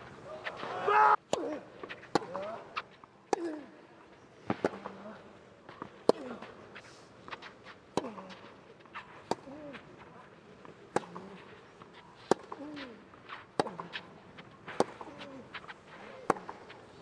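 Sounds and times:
tennis racket hitting ball: 0:10.9 - 0:16.8.

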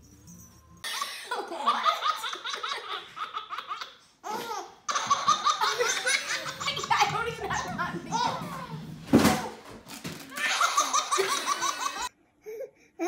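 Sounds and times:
baby laughing: 0:00.9 - 0:07.4, 0:10.3 - 0:12.6.

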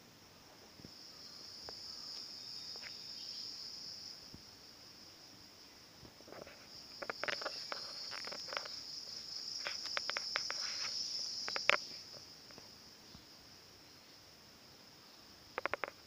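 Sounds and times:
high-pitched insect drone: 0:06.4 - 0:12.7, 0:15.1 - 0:16.0
sharp clicks and chirps: 0:07.0 - 0:12.6, 0:15.5 - 0:16.0.

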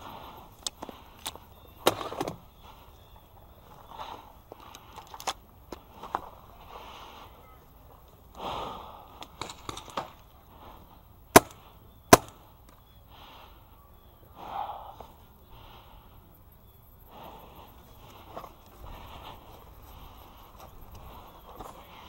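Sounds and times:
person breathing hard: 0:00.0 - 0:01.8, 0:02.5 - 0:09.4, 0:12.9 - 0:22.0
paintball marker shots: 0:11.3 - 0:12.5.

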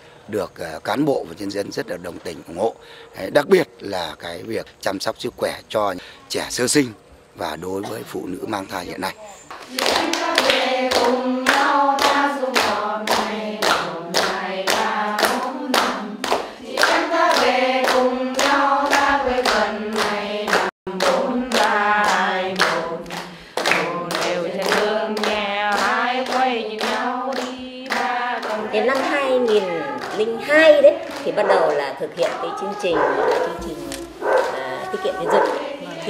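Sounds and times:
hands clapping to a beat: 0:09.5 - 0:30.3, 0:31.0 - 0:32.5, 0:33.2 - 0:34.6
women singing together: 0:09.6 - 0:36.0.

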